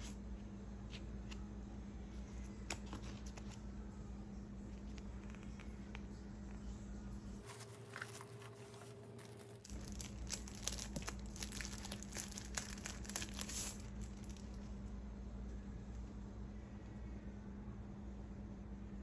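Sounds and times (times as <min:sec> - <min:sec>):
plastic bag crinkling: 0:07.4 - 0:14.6.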